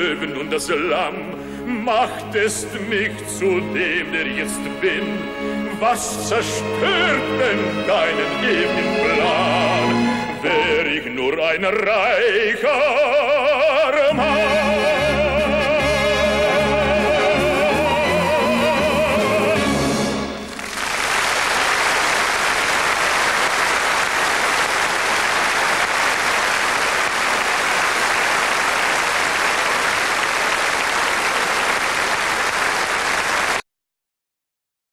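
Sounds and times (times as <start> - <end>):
man singing with vibrato: 0.0 - 20.2
audience applauding: 20.4 - 33.6.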